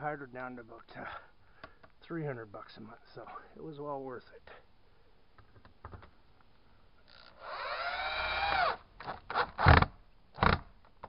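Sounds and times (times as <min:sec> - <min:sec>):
cordless drill motor: 0:07.1 - 0:08.8.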